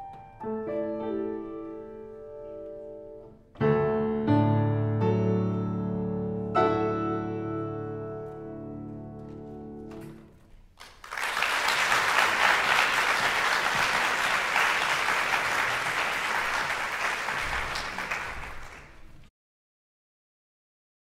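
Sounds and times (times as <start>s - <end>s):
audience applauding: 10.8s - 19.3s.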